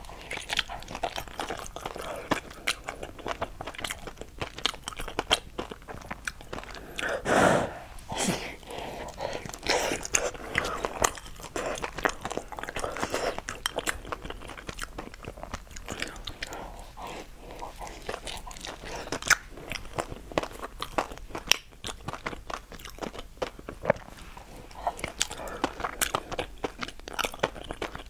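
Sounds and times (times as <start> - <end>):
person chewing food: 0.0 - 28.0.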